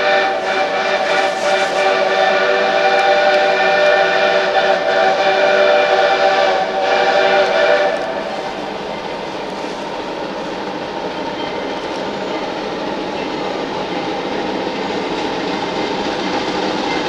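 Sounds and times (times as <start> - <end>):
steam locomotive whistle: 0.0 - 8.8.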